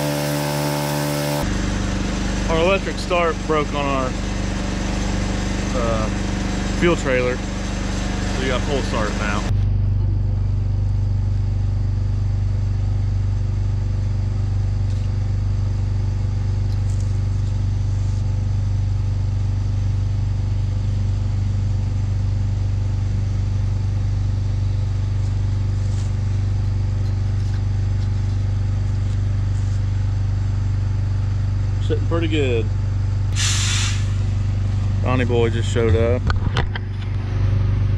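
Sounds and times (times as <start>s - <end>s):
small engine humming: 0.0s - 9.6s.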